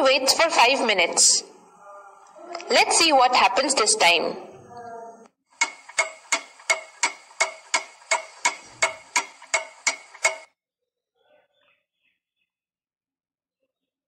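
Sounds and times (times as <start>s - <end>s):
clock ticking: 5.6s - 10.5s.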